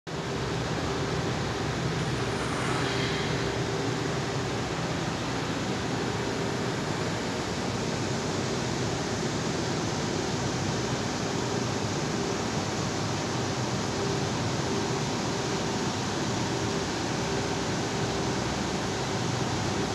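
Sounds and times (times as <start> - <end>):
large fans rushing air: 0.1 - 19.9.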